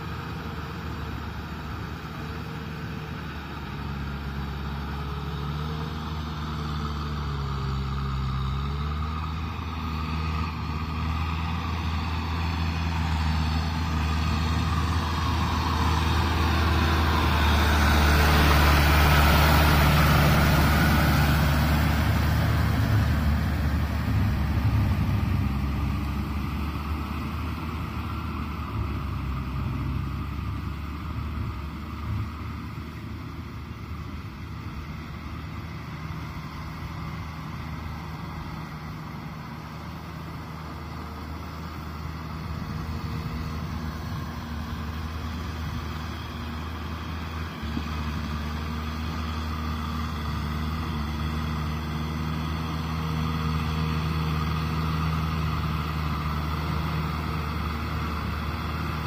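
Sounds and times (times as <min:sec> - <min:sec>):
tractor diesel engine running: 0:00.0 - 0:59.0
rotavator churning mud: 0:12.1 - 0:26.4.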